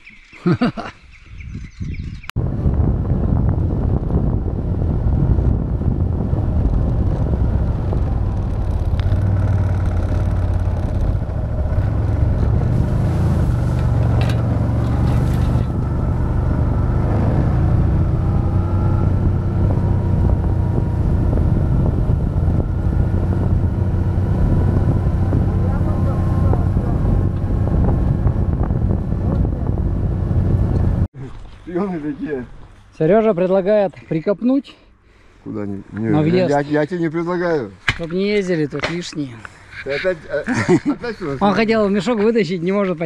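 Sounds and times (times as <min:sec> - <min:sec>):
vehicle engine running: 0:03.1 - 0:31.1.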